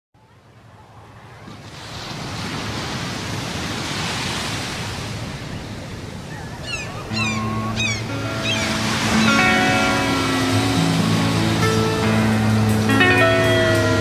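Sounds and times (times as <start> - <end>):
waves rushing: 0.4 - 14.0
high falling cries: 6.6 - 11.0, 12.9 - 14.0
sustained music notes: 7.1 - 14.0.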